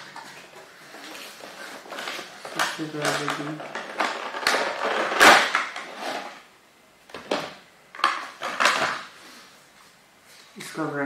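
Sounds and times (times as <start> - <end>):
cardboard and paper rustling: 0.0 - 6.4.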